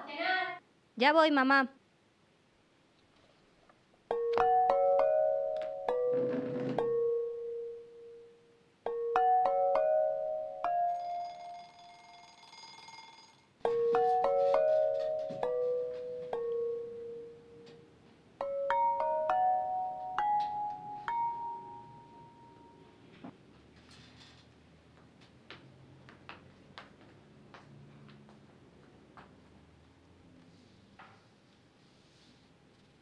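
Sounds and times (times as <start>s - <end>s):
music box melody: 4.1s - 22.9s.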